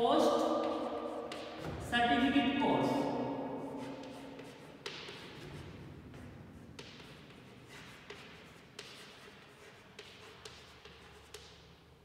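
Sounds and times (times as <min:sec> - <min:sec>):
chalk scraping on chalkboard: 0:00.4 - 0:01.9, 0:03.0 - 0:11.8
chalk tapping on board: 0:00.5 - 0:01.9, 0:03.8 - 0:11.8.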